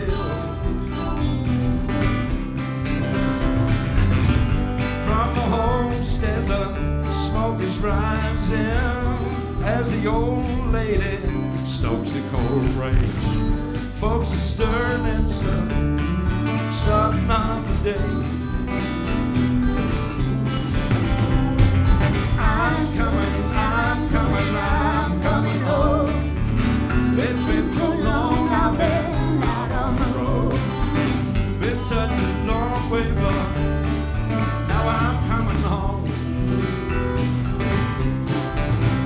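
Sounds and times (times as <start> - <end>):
bass: 0.0 - 39.0
drums: 0.0 - 39.0
strummed acoustic guitar: 0.0 - 39.0
woman singing: 22.3 - 33.6.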